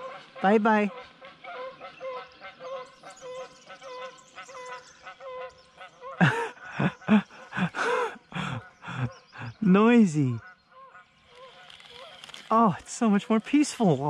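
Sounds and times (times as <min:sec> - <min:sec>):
geese honking: 0:00.0 - 0:12.2.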